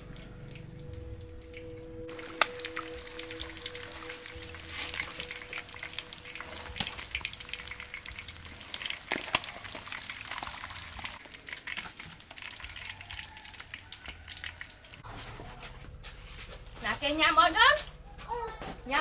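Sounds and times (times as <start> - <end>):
hot oil sizzling: 1.3 - 15.0.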